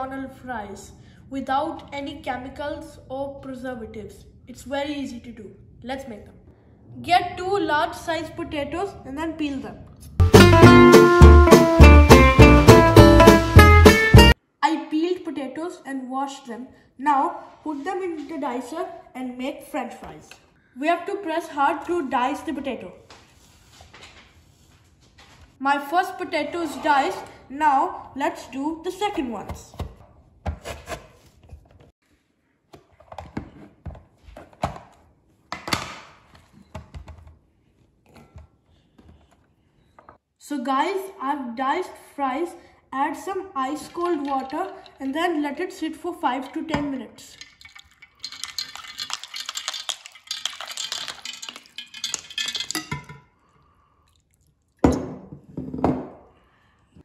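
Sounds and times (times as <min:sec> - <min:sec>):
ice cubes clinking against glass: 0:47.3 - 0:53.2
ice water pouring into bowl: 0:47.4 - 0:53.0.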